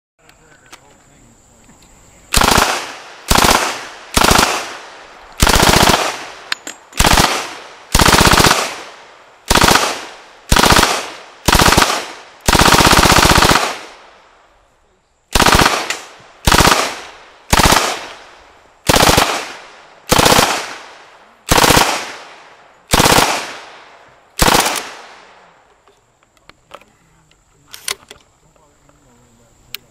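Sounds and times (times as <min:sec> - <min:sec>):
submachine gun firing bursts: 0:02.3 - 0:14.0, 0:15.3 - 0:18.2, 0:18.8 - 0:23.8, 0:24.4 - 0:25.2.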